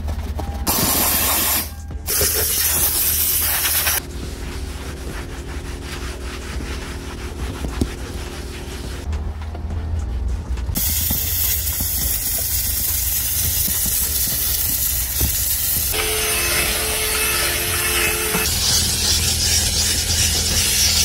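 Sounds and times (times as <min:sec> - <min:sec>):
steam cleaner hissing: 0:00.7 - 0:04.0, 0:10.8 - 0:21.0.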